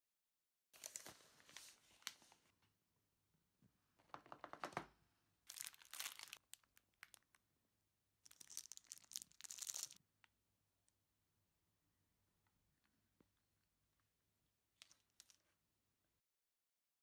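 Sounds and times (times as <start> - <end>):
plastic wrapper crinkling: 5.5 - 7.4, 8.3 - 10.0.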